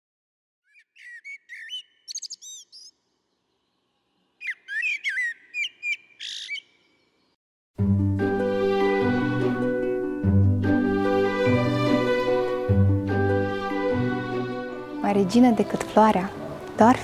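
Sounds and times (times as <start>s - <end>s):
songbird chirping and whistling: 0.6s - 3.0s, 4.4s - 7.0s.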